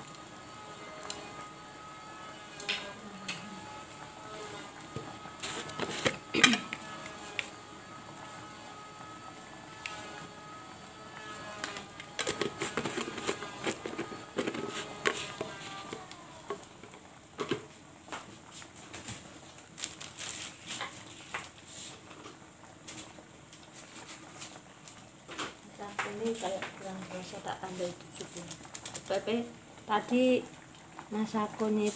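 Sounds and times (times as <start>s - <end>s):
utensils clicking and knocking: 11.5s - 16.6s.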